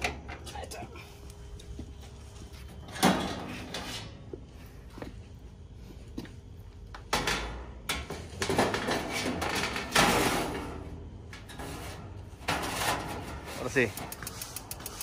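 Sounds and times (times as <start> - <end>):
metal panel scraping and clattering: 7.2 - 10.8, 11.4 - 13.6.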